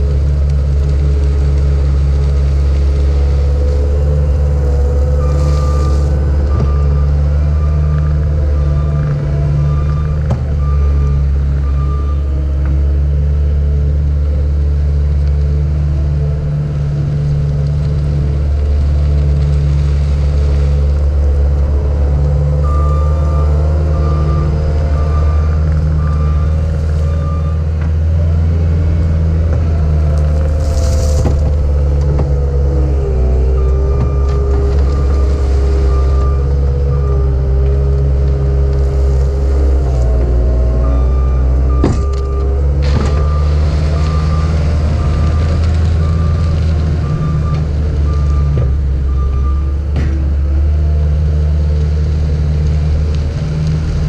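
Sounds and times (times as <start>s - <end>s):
diesel engine running: 0.0s - 54.0s
backup alarm beeping: 5.0s - 12.3s, 22.6s - 27.7s, 30.8s - 38.2s, 40.8s - 49.8s.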